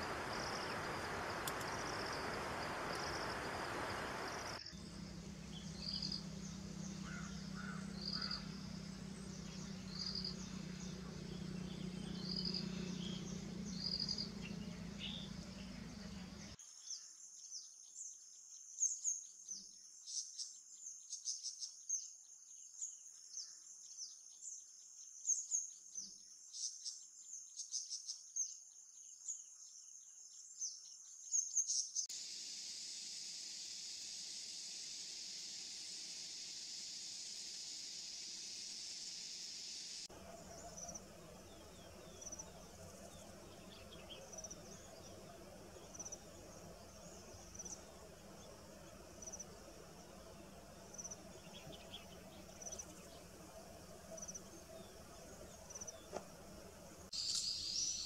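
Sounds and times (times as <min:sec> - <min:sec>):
steady low hum: 0:00.0 - 0:16.6, 0:34.3 - 0:58.0.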